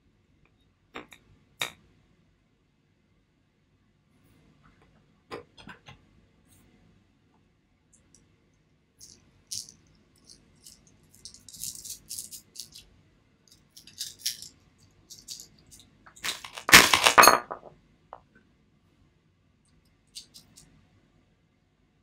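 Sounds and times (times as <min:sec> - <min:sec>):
stones rattling and rubbing: 0:09.0 - 0:12.9, 0:13.5 - 0:17.7
stones clicking together: 0:16.1 - 0:17.6.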